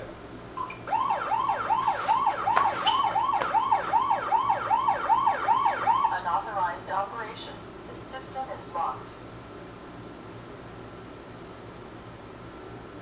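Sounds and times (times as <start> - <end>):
warbling alarm siren: 0.6 - 6.3.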